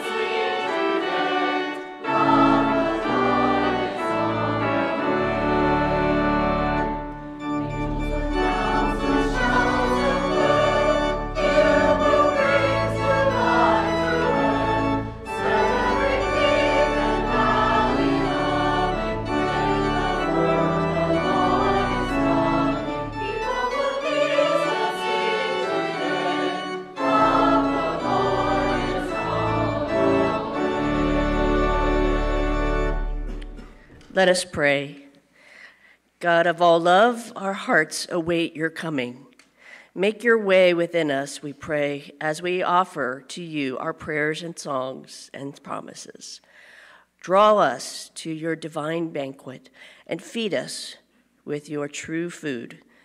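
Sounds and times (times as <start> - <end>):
people singing a hymn: 0.0 - 33.7
organ: 0.0 - 34.5.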